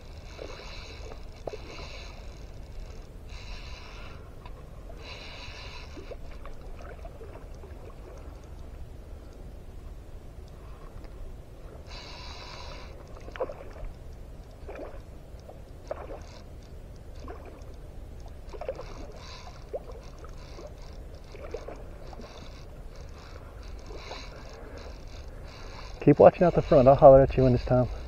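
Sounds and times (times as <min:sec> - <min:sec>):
water slapping and splashing: 0:14.6 - 0:15.1.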